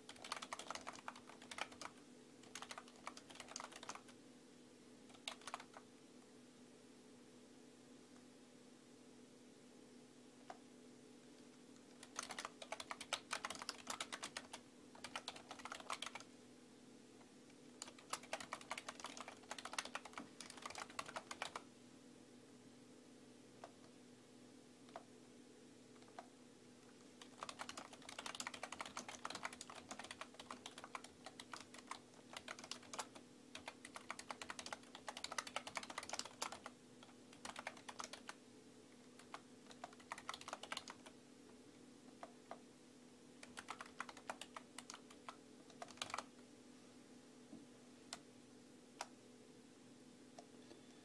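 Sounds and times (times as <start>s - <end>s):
computer keyboard typing: 0.0s - 4.2s, 5.1s - 5.8s, 11.8s - 16.3s, 17.8s - 21.7s, 27.0s - 38.4s, 39.0s - 41.2s, 43.4s - 46.4s
faint steady hum: 0.0s - 51.0s.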